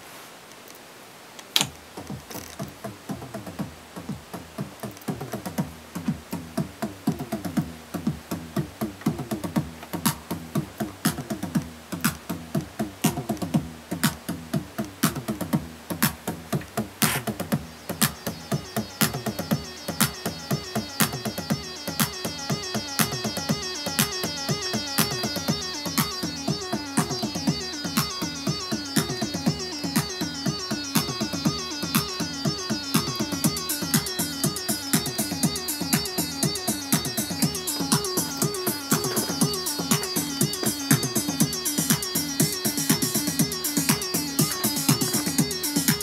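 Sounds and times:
drum machine beat: 1.8s - 46.0s
synthesizer bassline: 1.8s - 46.0s
high synth pattern: 15.0s - 46.0s.

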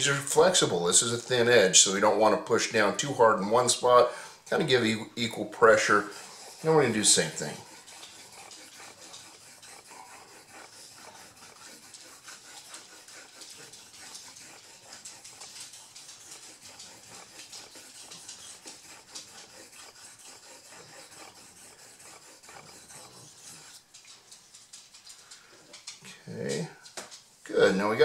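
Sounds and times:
razor scraping on wet stone: 4.5s - 24.1s.

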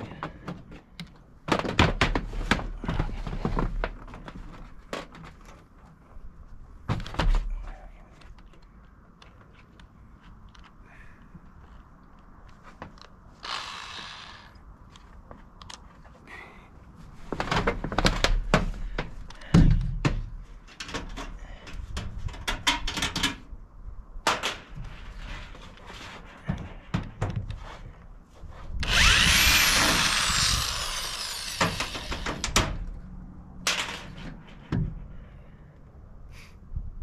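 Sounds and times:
drill short bursts and clicks: 13.4s - 14.5s, 28.8s - 32.3s
cordless drill whine: 13.4s - 14.6s, 28.8s - 32.5s.

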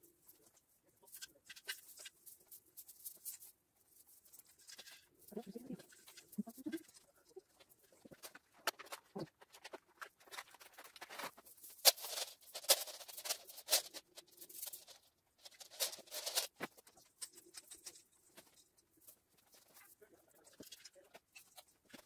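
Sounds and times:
artificial tree branches rustling: 0.1s - 22.0s
bead garland clicking and rattling: 7.6s - 22.0s.

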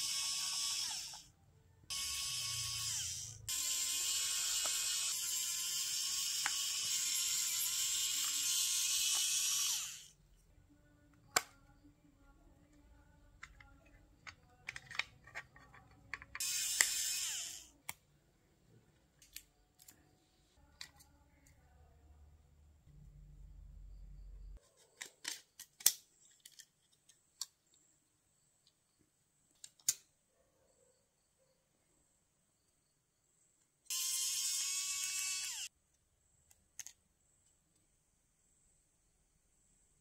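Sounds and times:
electric screwdriver whirring: 0.0s - 1.3s, 1.9s - 10.2s, 16.4s - 17.7s, 33.9s - 35.7s.

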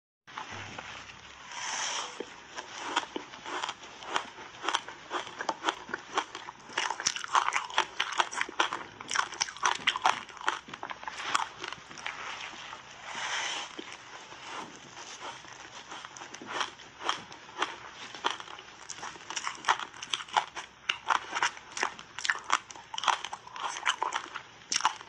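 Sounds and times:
crunching frozen ice: 2.5s - 12.6s.

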